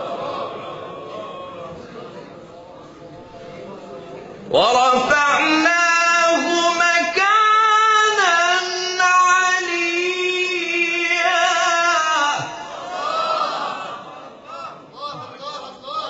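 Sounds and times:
man chanting melismatic recitation: 4.5s - 13.0s.

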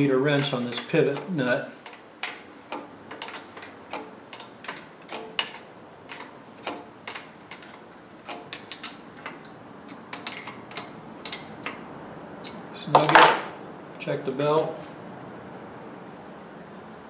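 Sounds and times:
wrench clicking on nut: 0.4s - 11.8s.

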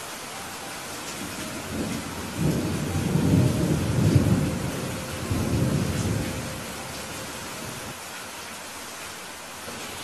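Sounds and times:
steady rain falling: 0.0s - 10.0s
thunder rolling: 1.6s - 6.6s.

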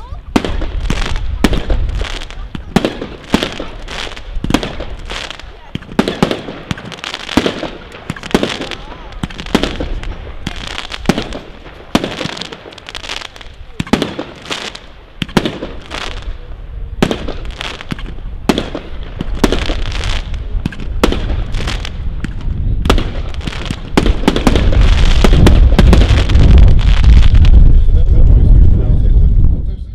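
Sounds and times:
firework shots: 0.0s - 28.7s
firework crackling and fizzing: 0.0s - 28.9s
heavy low rumble: 20.2s - 29.9s.

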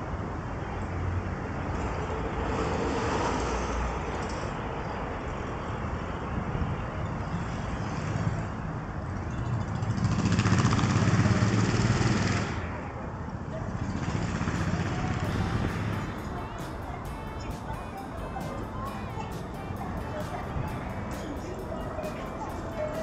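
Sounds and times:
road traffic hum: 0.0s - 23.0s.

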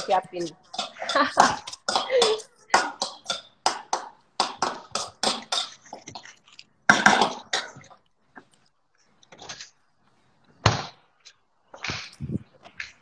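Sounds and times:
spoon scraping in ceramic bowl: 4.8s - 6.6s.

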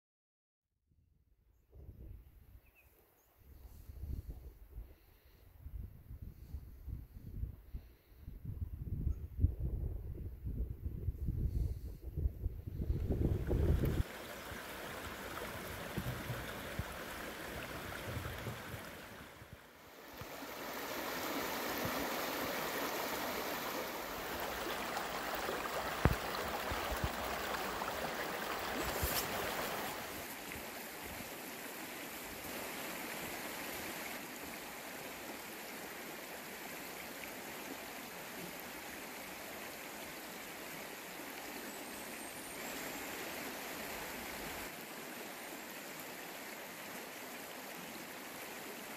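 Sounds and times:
creek running over stones: 12.8s - 48.9s.

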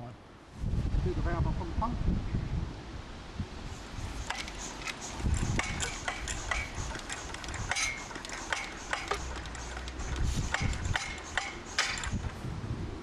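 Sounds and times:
metallic clicks and clinks: 4.2s - 12.3s.

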